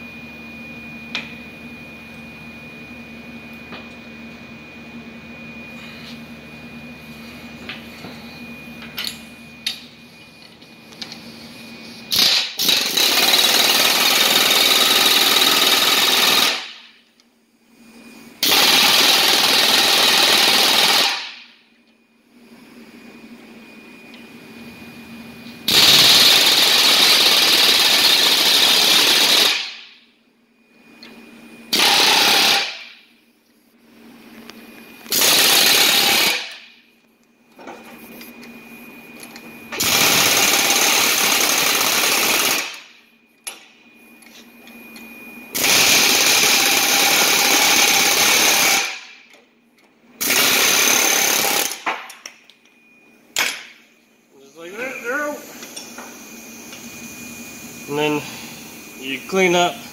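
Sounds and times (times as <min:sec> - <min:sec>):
pneumatic air hammer: 0:12.1 - 0:17.0, 0:18.4 - 0:21.6, 0:25.7 - 0:30.0, 0:31.7 - 0:33.1, 0:35.1 - 0:36.8, 0:39.7 - 0:43.6, 0:45.5 - 0:49.4, 0:50.2 - 0:52.3.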